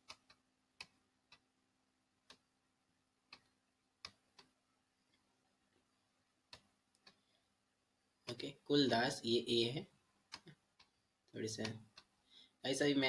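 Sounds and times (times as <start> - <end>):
computer mouse clicks: 0.0 - 1.5, 3.3 - 5.2, 6.5 - 7.3, 10.3 - 12.2.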